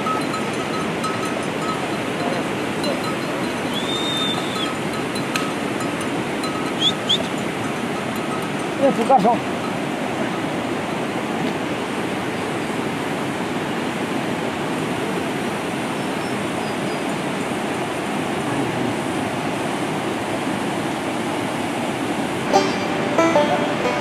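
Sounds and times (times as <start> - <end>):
acoustic guitar strumming: 22.4 - 24.0.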